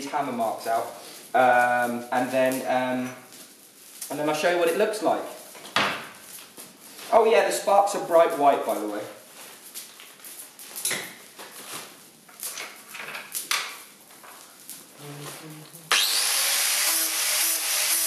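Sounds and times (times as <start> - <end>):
angle grinder grinding metal: 15.1 - 18.0.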